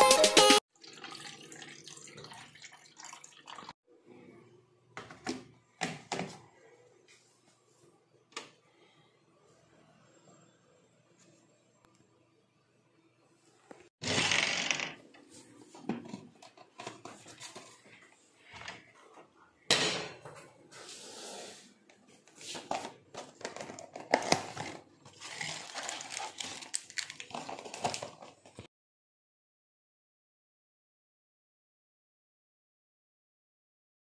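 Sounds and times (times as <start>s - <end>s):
kitchen containers clattering: 19.7s - 20.6s, 22.4s - 28.5s.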